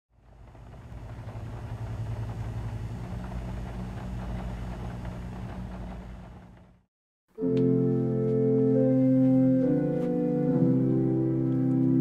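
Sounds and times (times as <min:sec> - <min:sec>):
low steady hum: 0:00.2 - 0:06.8.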